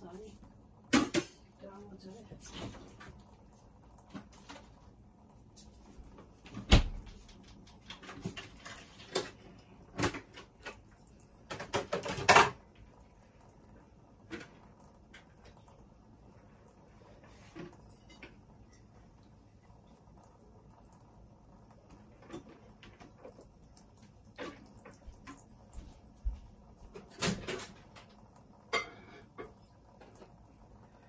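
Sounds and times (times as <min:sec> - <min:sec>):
dishes clattering: 0:11.5 - 0:12.6, 0:28.7 - 0:30.2.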